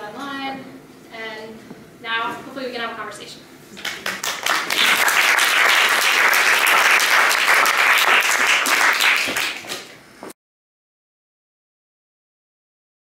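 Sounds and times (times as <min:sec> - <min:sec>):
audience applauding: 0:03.8 - 0:09.8.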